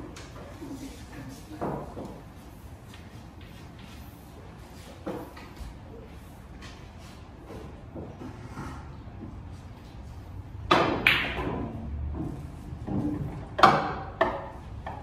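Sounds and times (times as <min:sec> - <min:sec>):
billiard balls clacking: 0:10.6 - 0:15.0.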